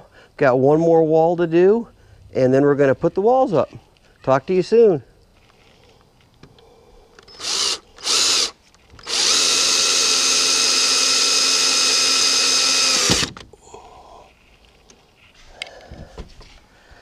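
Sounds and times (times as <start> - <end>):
power drill running: 7.3 - 13.4.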